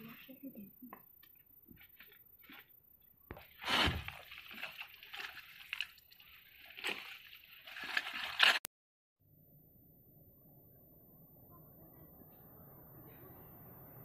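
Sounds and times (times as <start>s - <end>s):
dry leaves rustling and crackling: 3.6s - 8.6s.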